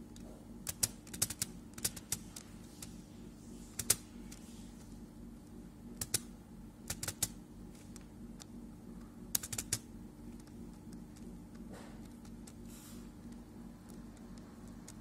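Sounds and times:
low steady hum: 0:00.0 - 0:15.0
computer keys clicking: 0:00.6 - 0:02.9, 0:03.8 - 0:04.0, 0:06.0 - 0:06.3, 0:06.9 - 0:08.6, 0:09.3 - 0:12.6, 0:13.2 - 0:15.0.

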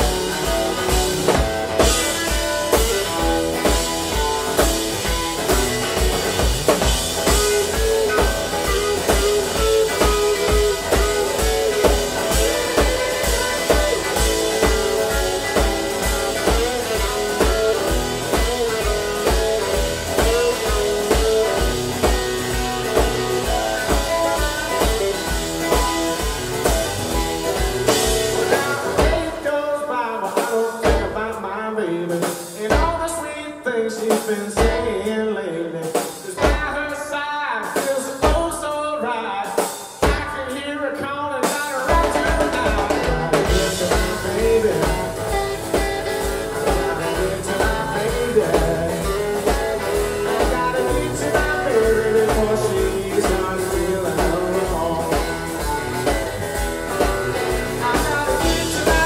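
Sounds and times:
electric guitar lines: 0:00.0 - 0:29.6, 0:41.8 - 0:59.0
live blues-rock band: 0:00.0 - 0:59.0.

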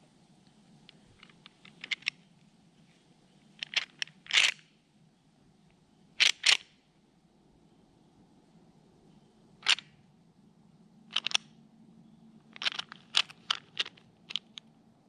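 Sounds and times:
small clicks: 0:00.4 - 0:02.5, 0:03.6 - 0:04.7, 0:09.6 - 0:10.0, 0:11.1 - 0:11.6, 0:12.5 - 0:14.8.

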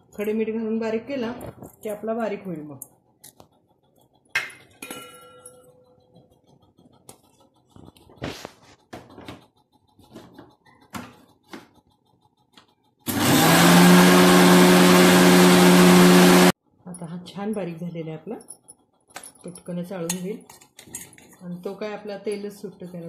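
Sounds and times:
steel bowls clinking: 0:04.4 - 0:05.9
electric mixer grinder running: 0:06.2 - 0:16.6.

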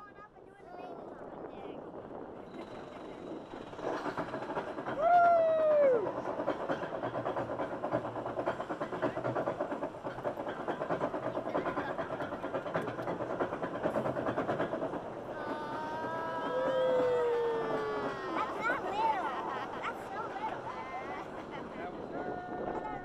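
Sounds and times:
rider whooping: 0:15.3 - 0:19.5.

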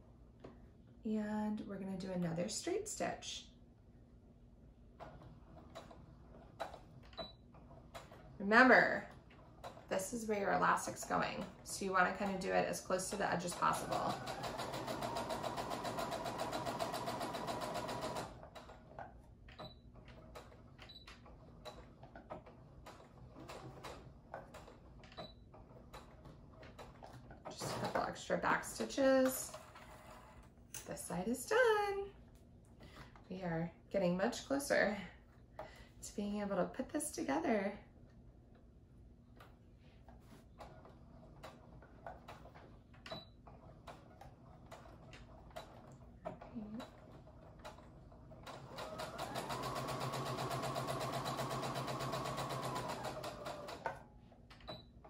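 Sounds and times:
sewing machine stitching: 0:05.0 - 0:30.5, 0:40.6 - 0:54.1.

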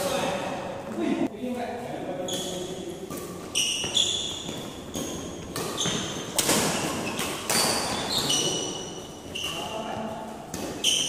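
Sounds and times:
shoes squeaking on floor: 0:02.1 - 0:11.0
rackets hitting shuttlecock: 0:02.3 - 0:09.7, 0:10.3 - 0:11.0.

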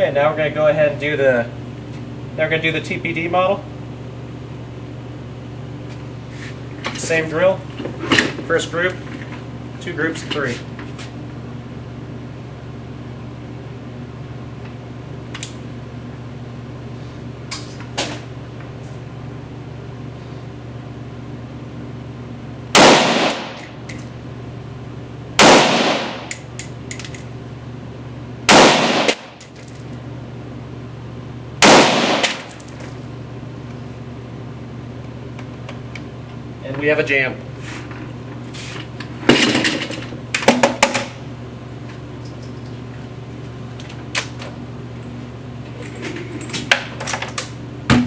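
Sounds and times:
steady low hum: 0:00.0 - 0:48.0
rifle shots with ringing echo: 0:22.8 - 0:23.6, 0:25.4 - 0:26.3, 0:28.5 - 0:29.4, 0:31.6 - 0:32.6.

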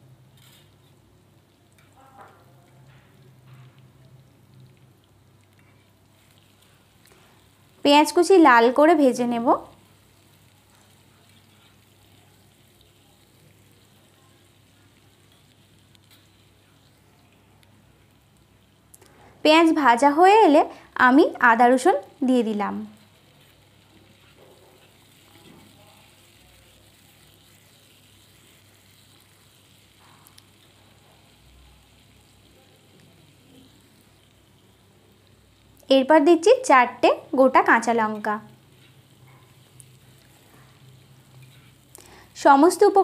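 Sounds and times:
onions sizzling in oil: 0:00.0 - 0:43.0.

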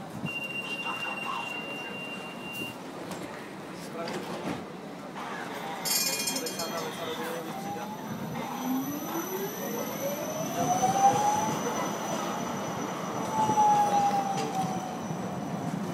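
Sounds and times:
tram running rumble: 0:00.0 - 0:15.9
tram motor whine: 0:07.1 - 0:15.9.

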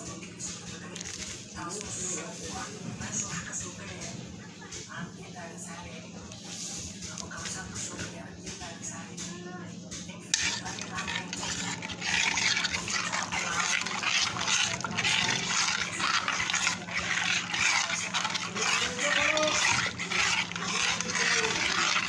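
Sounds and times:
metal spoon scraping a steel pot: 0:10.3 - 0:22.0.

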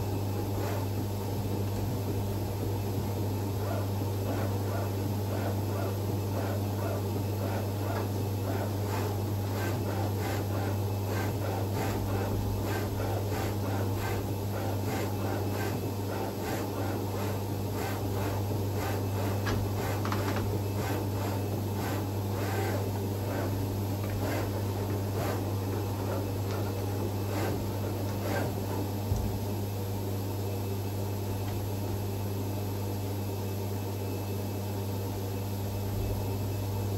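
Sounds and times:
plotter head clicking and whirring: 0:00.0 - 0:29.6
plotter low hum: 0:00.0 - 0:33.0.

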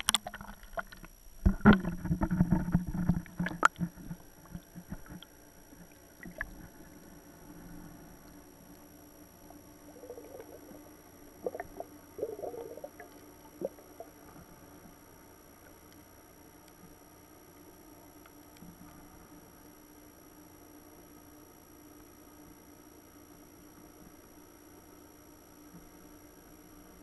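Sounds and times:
water sloshing: 0:00.0 - 0:07.0
faint low hum: 0:00.0 - 0:27.0.

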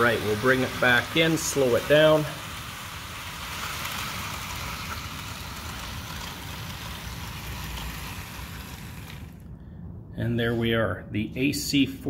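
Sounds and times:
model train motors whirring: 0:00.0 - 0:09.5.

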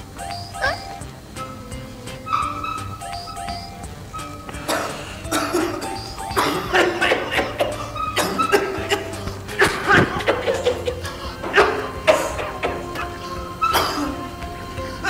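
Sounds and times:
background music: 0:00.0 - 0:15.0.

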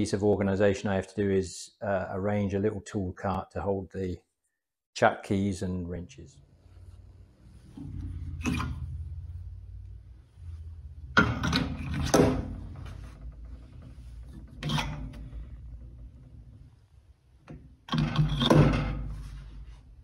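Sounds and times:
steel tool holders clinking: 0:13.8 - 0:15.4.

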